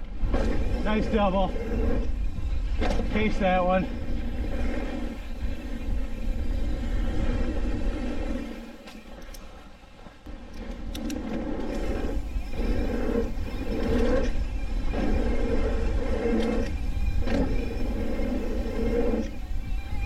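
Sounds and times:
bike tyre noise on dirt: 0.0s - 20.0s
wind over microphone: 0.0s - 20.0s.

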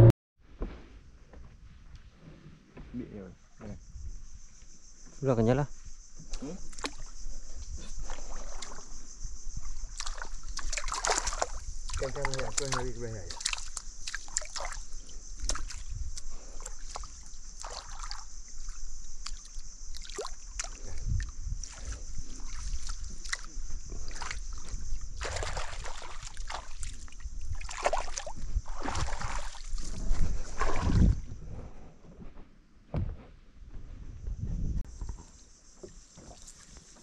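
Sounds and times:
water sloshing and splashing: 6.6s - 7.2s, 7.8s - 9.0s, 9.6s - 31.2s
steady high-pitched hiss: 33.7s - 37.0s.

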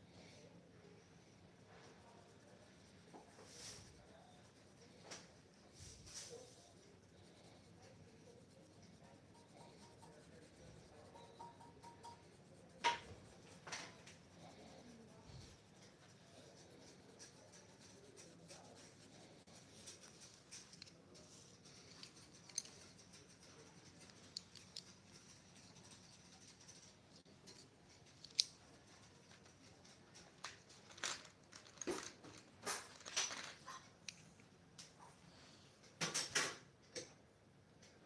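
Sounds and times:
pencil scratching on paper: 1.6s - 27.2s.

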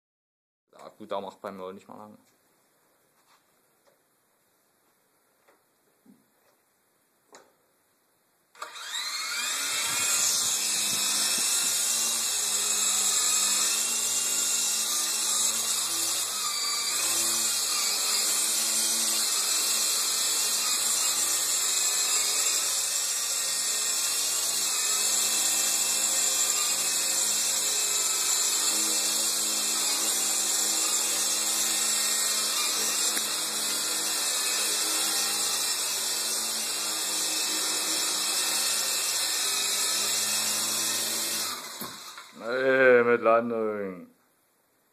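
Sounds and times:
rc helicopter motor whine: 8.6s - 42.4s.

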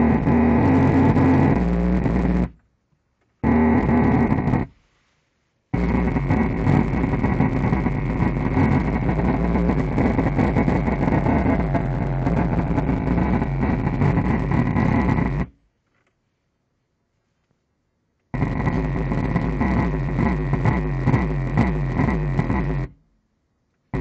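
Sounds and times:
car subwoofer blasting: 0.0s - 2.6s, 3.4s - 4.8s, 5.7s - 15.6s, 18.3s - 23.0s.

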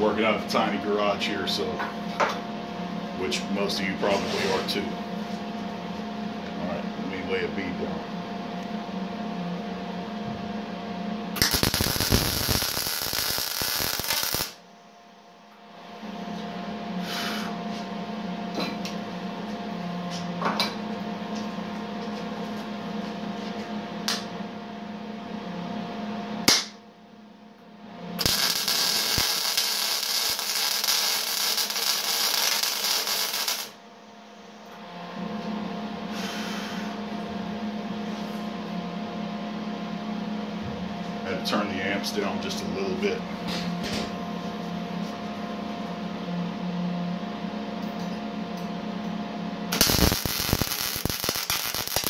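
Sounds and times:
steady hum: 0.0s - 52.0s
welding arc crackling: 11.4s - 14.6s, 28.2s - 33.8s, 49.7s - 52.0s.

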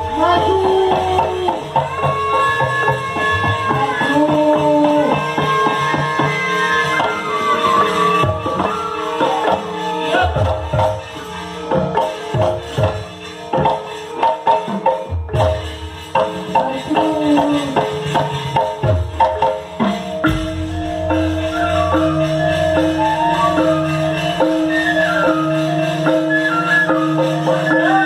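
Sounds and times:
gamelan playing: 0.0s - 28.0s
deep gong ringing: 20.2s - 24.4s.

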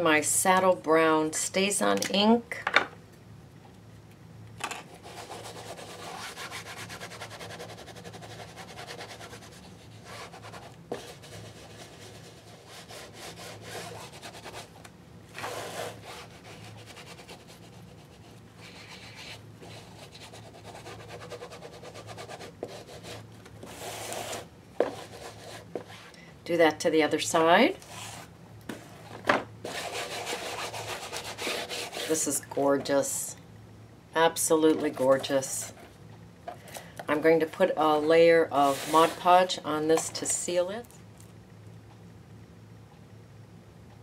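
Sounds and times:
ink pad rubbing on journal edges: 5.0s - 14.7s, 15.3s - 26.1s, 29.6s - 32.3s, 38.6s - 39.4s.

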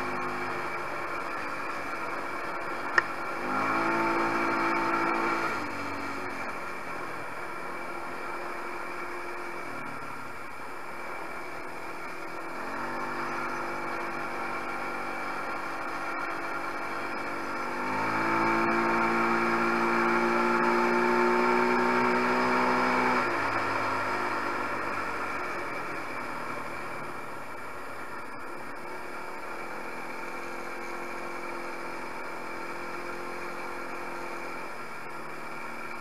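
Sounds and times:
quad engine revving: 0.0s - 10.1s, 11.5s - 26.9s.

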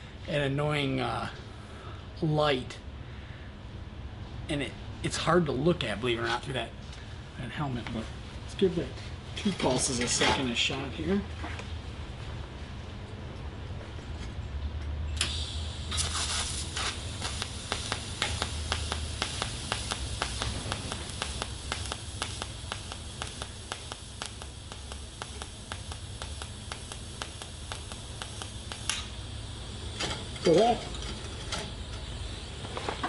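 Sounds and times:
welding arc hissing and crackling: 15.2s - 33.0s.

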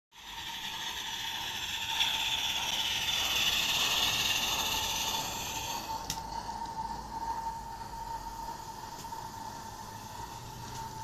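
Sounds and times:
model steam locomotive hissing: 0.1s - 6.2s
steady high tone: 0.2s - 11.0s.

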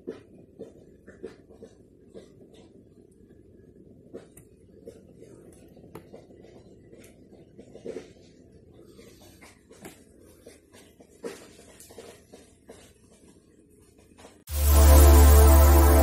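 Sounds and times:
steady low rumble: 14.5s - 16.0s.

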